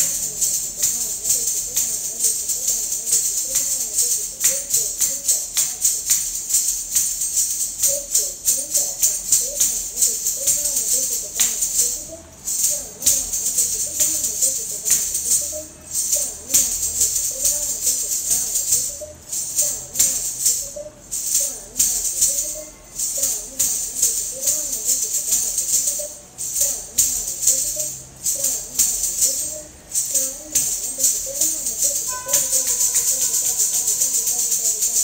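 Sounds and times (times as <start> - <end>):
ankle bells jingling: 0.0 - 35.0
wavering melodic accompaniment: 27.3 - 35.0.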